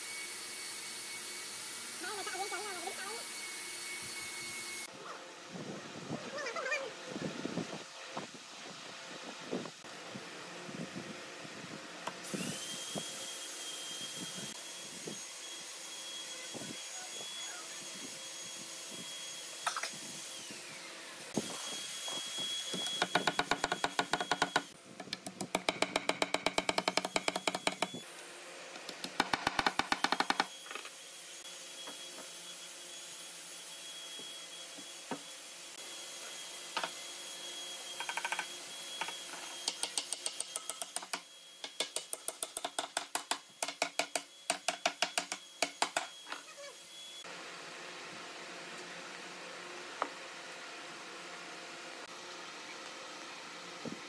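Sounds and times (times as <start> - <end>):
hammer knocking wooden dowels: 23.0 - 24.6, 25.2 - 28.0, 29.1 - 30.5, 39.6 - 46.1.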